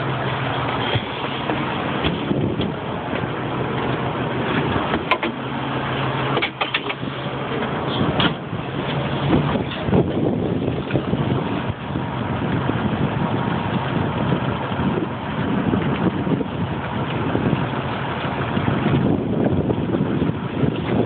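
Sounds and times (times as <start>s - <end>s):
boat engine and net drum hum: 0.0s - 21.0s
deck gear clicks and knocks: 4.5s - 5.4s.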